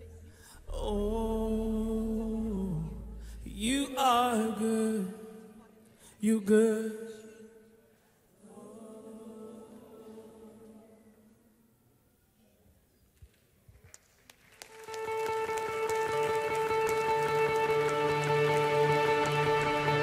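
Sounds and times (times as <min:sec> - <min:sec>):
low sustained tone: 0:00.0 - 0:04.1
person singing long notes: 0:00.0 - 0:05.5.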